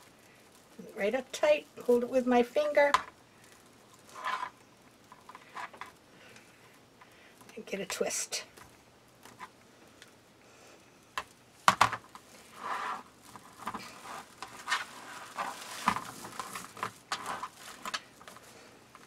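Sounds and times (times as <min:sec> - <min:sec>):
mesh rustling and crinkling: 0:00.0 - 0:06.8, 0:11.2 - 0:19.0.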